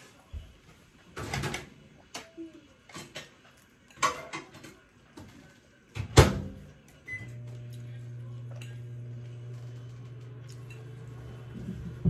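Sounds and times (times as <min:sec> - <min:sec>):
microwave humming: 0:06.2 - 0:12.0.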